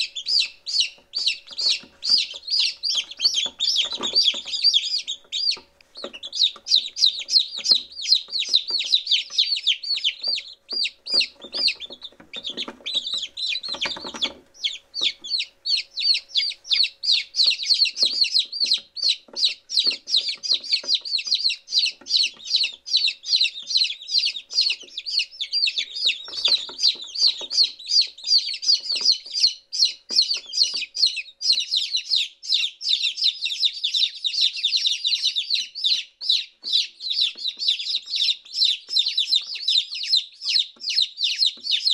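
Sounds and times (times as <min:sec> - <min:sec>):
chicks peeping: 0:00.0 - 0:41.9.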